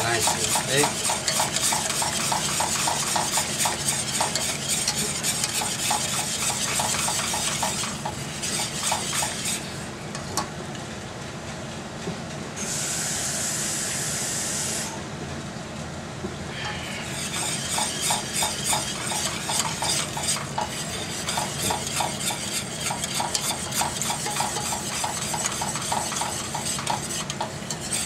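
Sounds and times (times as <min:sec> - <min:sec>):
whisk ticking against a pan: 0:00.0 - 0:09.6, 0:17.1 - 0:28.0.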